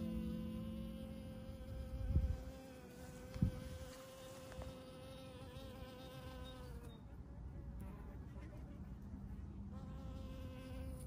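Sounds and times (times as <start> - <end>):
flying insect buzzing: 0.0 - 6.9.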